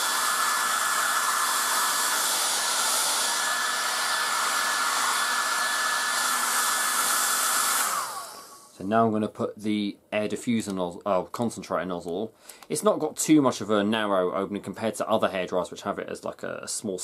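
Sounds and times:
hairdryer running: 0.0s - 8.8s.

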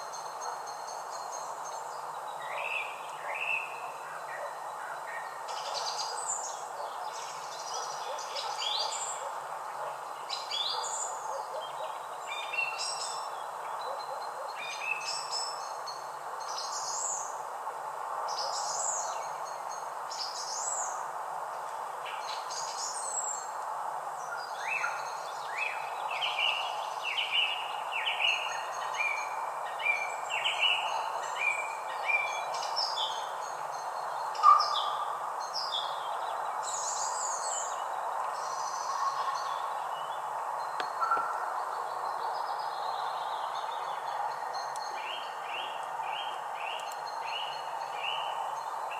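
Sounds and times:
background hiss: 0.0s - 48.9s
songbirds chirping and whistling: 24.2s - 48.9s.

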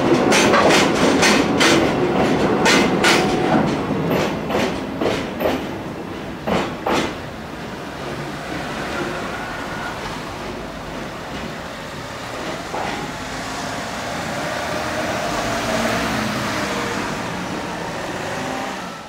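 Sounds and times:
tyres on road: 0.0s - 19.0s
car engines: 7.2s - 19.0s.

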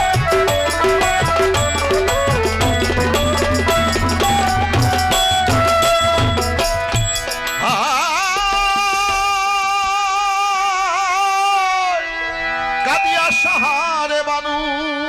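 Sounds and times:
drum strokes: 0.0s - 10.0s
harmonium: 0.0s - 15.0s
man singing with vibrato: 6.8s - 12.2s, 12.8s - 15.0s.

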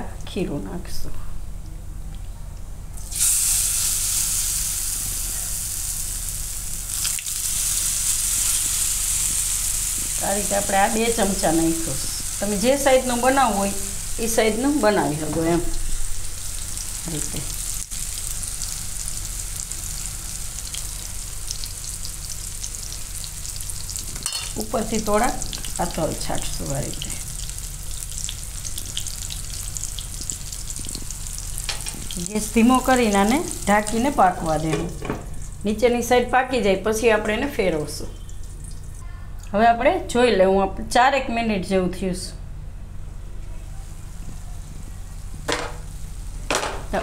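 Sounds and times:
batter sizzling in hot oil: 3.0s - 34.7s
seeds crackling in oil: 25.3s - 34.0s.

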